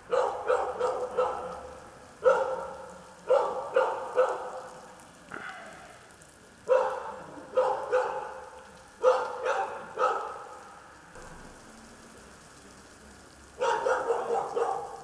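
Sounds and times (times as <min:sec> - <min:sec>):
dog barking: 0:00.0 - 0:05.8, 0:06.7 - 0:10.6, 0:13.6 - 0:15.0.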